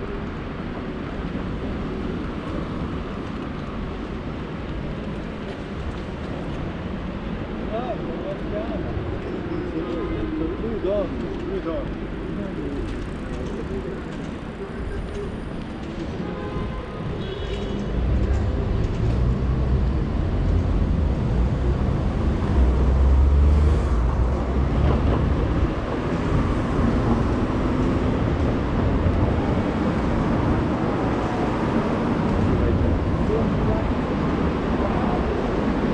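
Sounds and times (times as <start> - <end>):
heavy vehicle rumbling: 17.9 - 35.9.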